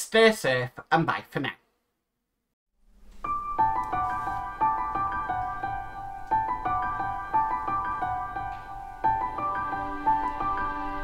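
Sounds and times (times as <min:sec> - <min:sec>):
piano-like keyboard melody: 0:02.9 - 0:11.0.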